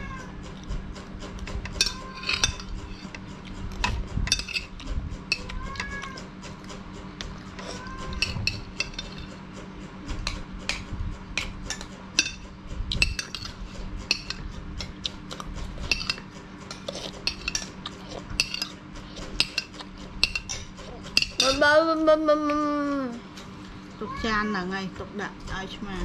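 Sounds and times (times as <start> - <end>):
cat meowing: 0.0 - 0.4, 5.4 - 6.3, 7.6 - 8.4
metal spoon scraping ceramic plate: 1.3 - 9.5, 10.2 - 21.6.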